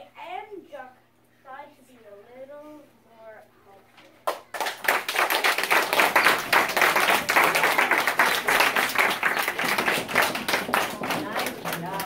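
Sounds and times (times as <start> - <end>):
audience applause: 4.5 - 12.0.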